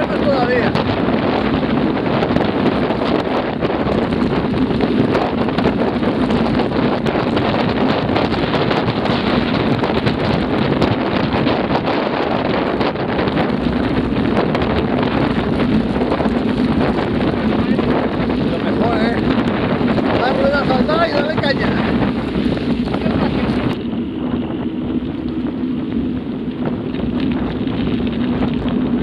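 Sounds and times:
wind rushing over microphone: 0.0s - 29.0s
bike rattling clicks: 0.8s - 10.4s, 21.6s - 29.0s.

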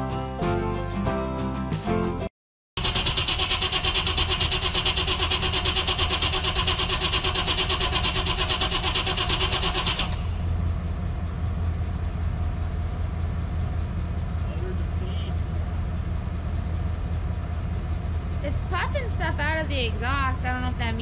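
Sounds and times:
engine starter cranking: 2.8s - 10.5s
low engine idle: 2.8s - 21.0s.

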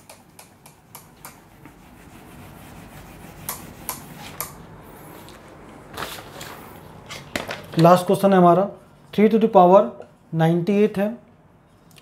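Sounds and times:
duster rubbing whiteboard: 1.4s - 4.5s.

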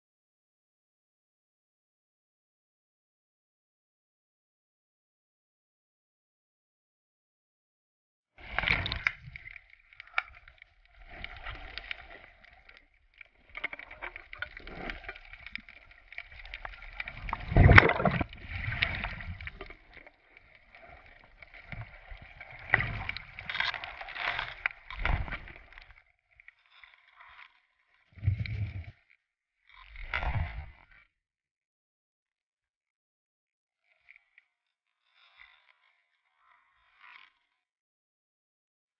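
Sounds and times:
water sloshing and gurgling: 8.4s - 29.1s, 29.7s - 31.1s.

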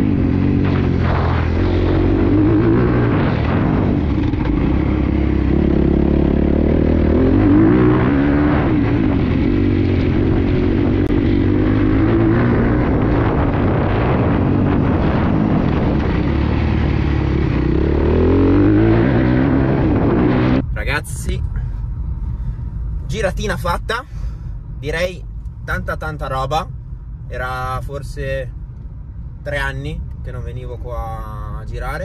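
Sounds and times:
motorbike engine revving: 0.0s - 20.6s.

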